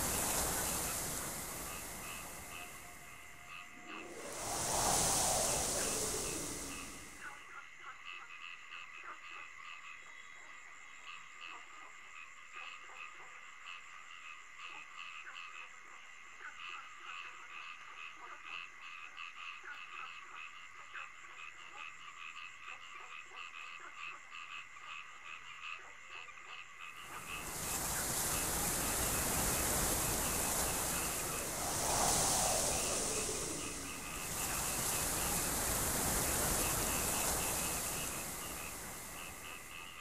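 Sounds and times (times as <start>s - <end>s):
loud rushing hiss: 0.0s - 3.2s, 3.8s - 7.2s, 27.1s - 40.0s.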